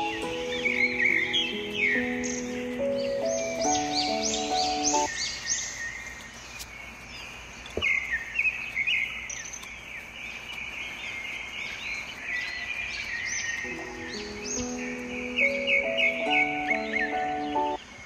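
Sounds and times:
background music: 0.0s - 5.1s, 13.7s - 17.8s
small birds chirping: 0.0s - 18.0s.

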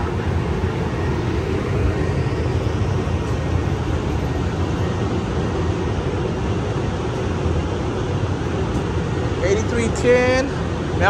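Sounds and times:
diesel train idling: 0.0s - 11.0s.

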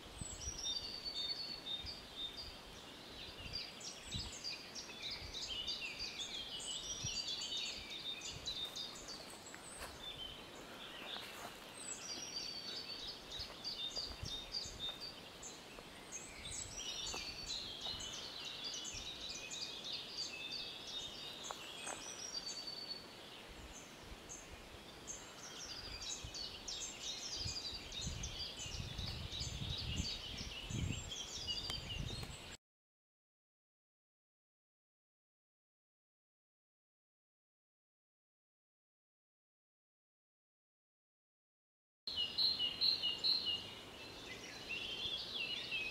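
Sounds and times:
songbirds chirping: 0.0s - 32.6s, 42.1s - 45.9s.

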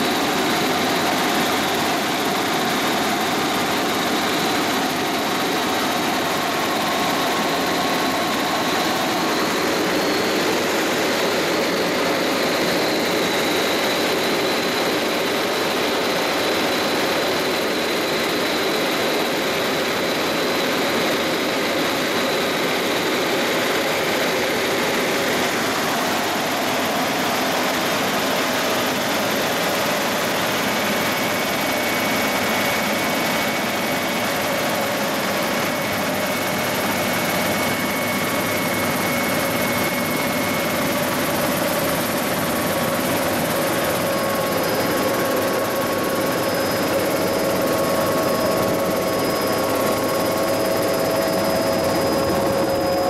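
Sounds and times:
helicopter engine and rotor drone: 0.0s - 53.0s
faint high whine: 24.0s - 53.0s.

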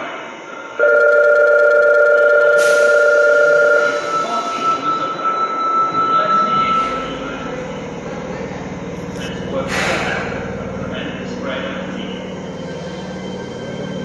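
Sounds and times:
subway train rumble: 0.0s - 14.0s
electronic warning tone: 0.8s - 7.5s.

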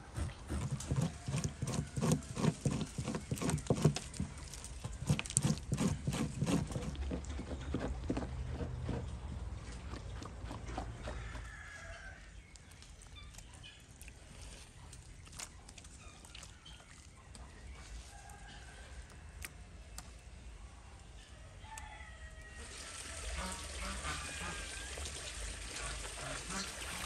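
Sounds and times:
chickens clucking: 25.8s - 27.0s.

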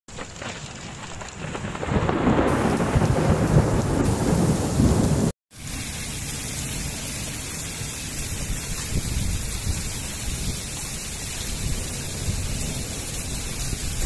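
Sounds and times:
thunder rumbling: 0.1s - 6.2s, 11.4s - 14.0s
heavy rain: 0.1s - 14.0s.

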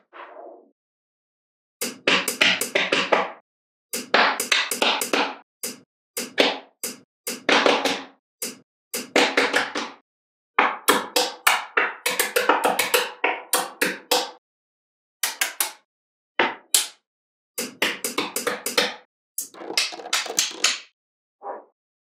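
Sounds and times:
magnetic balls clicking: 19.4s - 20.8s.

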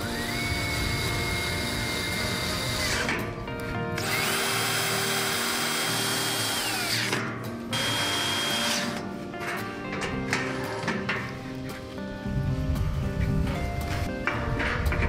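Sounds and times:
cordless drill motor whine: 0.0s - 3.1s, 4.0s - 7.1s, 7.8s - 9.0s.

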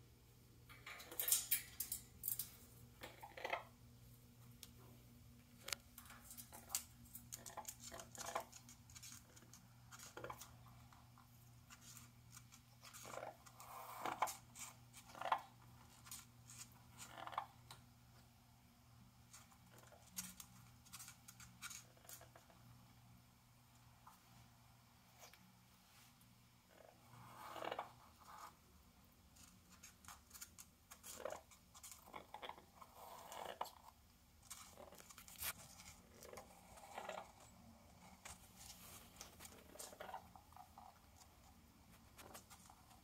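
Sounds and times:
parrot clicking on cage bars: 0.7s - 3.4s.

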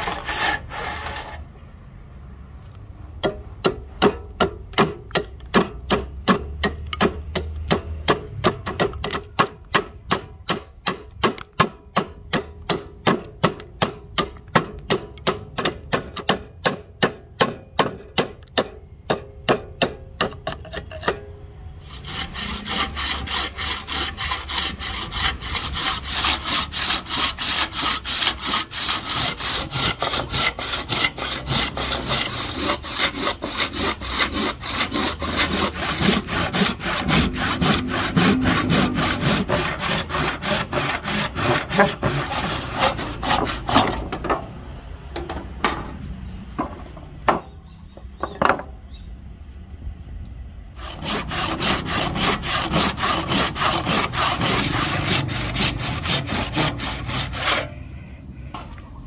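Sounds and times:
handsaw cutting wood: 0.0s - 1.5s, 21.8s - 44.2s, 50.8s - 57.8s.

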